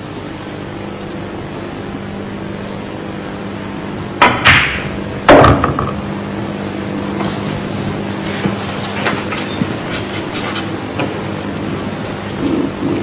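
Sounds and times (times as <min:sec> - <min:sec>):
steady low hum: 0:00.0 - 0:13.0
billiard balls clacking: 0:04.2 - 0:06.1
cue tip striking ball: 0:04.2 - 0:06.1.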